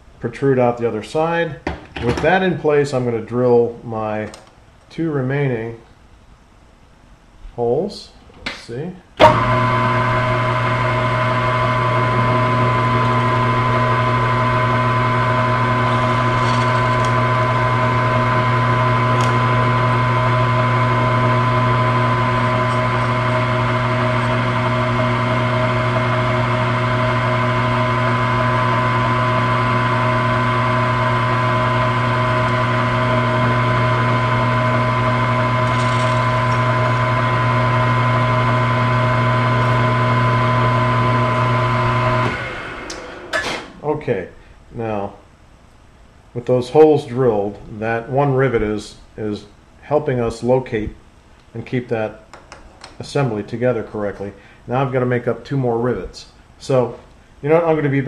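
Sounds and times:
drill press motor humming: 9.2s - 43.9s
drill bit drilling through metal: 11.7s - 42.3s.

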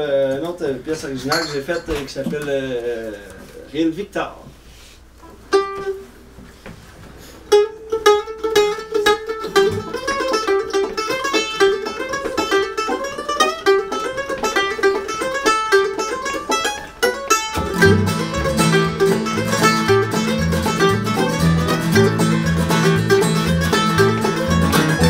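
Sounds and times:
mandolin picking fast melody: 7.5s - 25.0s.

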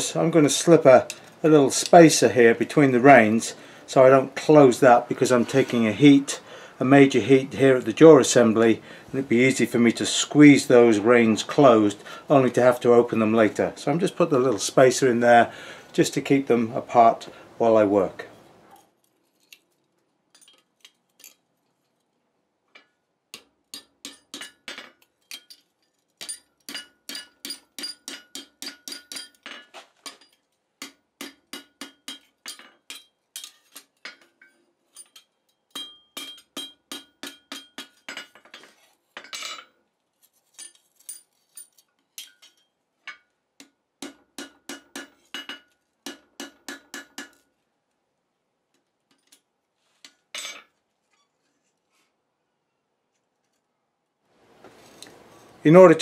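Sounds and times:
hammer ringing on metal tongs: 26.2s - 29.4s, 35.0s - 38.0s.

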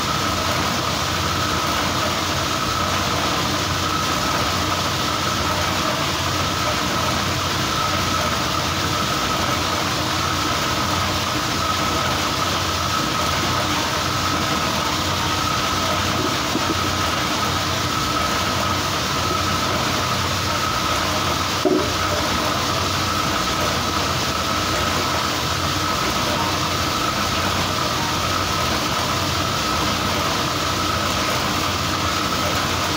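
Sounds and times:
oil press clatter and hum: 0.0s - 32.9s
brief knock: 21.6s - 22.0s.

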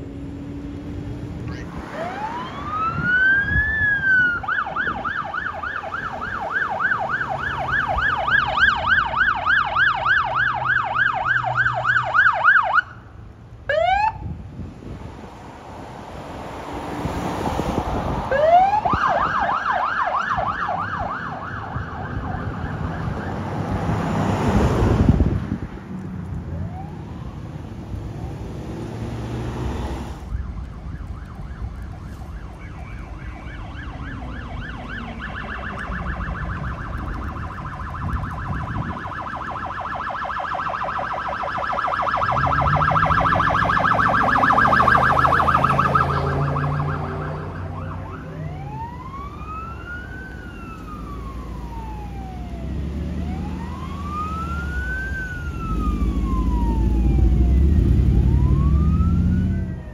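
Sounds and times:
electronic siren: 1.6s - 13.0s, 18.3s - 23.8s, 29.8s - 59.9s.

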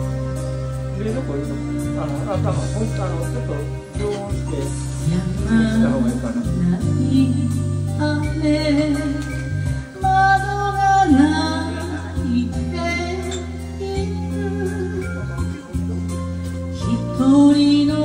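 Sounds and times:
backing track with bass: 0.0s - 18.0s
woman singing into a microphone: 5.0s - 15.2s, 16.7s - 18.0s.

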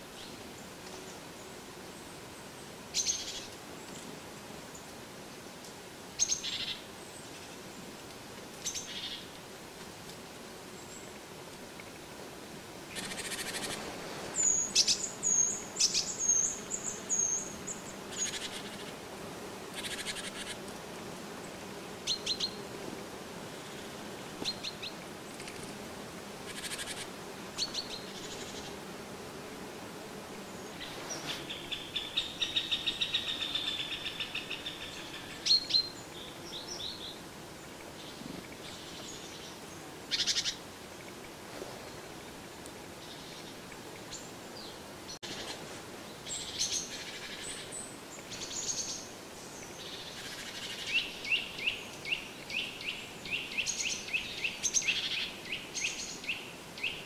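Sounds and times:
songbirds chirping: 12.8s - 57.0s.

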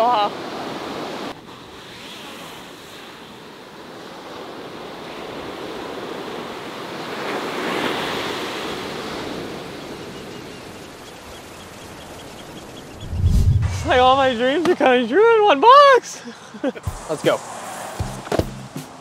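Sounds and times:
ocean waves breaking: 12.6s - 15.3s.

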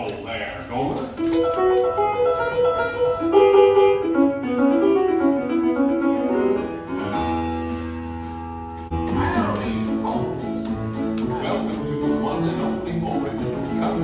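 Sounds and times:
piano melody: 1.0s - 14.0s.

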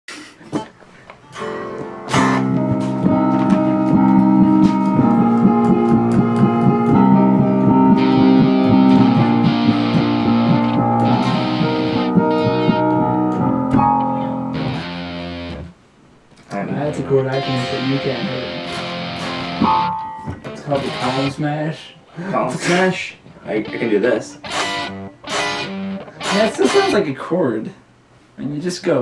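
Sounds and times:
electric guitar chords: 1.2s - 15.8s, 16.6s - 21.5s, 23.4s - 27.0s
electronic keyboard chords: 1.2s - 15.8s, 16.7s - 21.4s, 23.7s - 26.9s.

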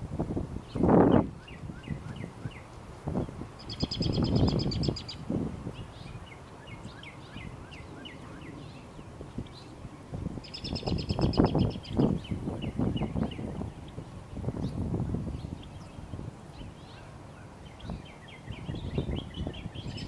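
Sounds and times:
songbirds chirping: 0.5s - 20.0s
bird trilling: 3.6s - 5.2s.

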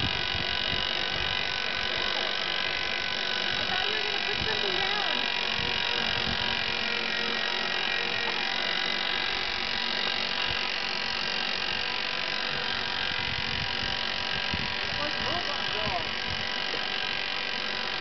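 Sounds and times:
electric winch whining: 0.0s - 18.0s.

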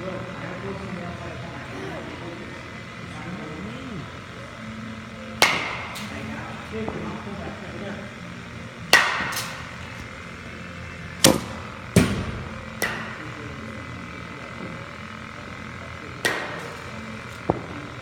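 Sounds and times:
baseballs thwacking with echo: 5.3s - 7.4s, 8.8s - 10.4s, 11.1s - 13.7s, 16.2s - 18.0s.

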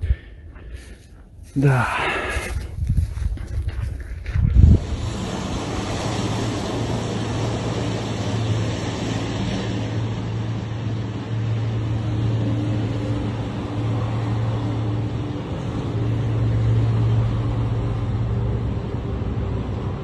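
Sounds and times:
heavy vehicle engines droning: 0.0s - 20.0s
road noise: 0.0s - 20.0s.

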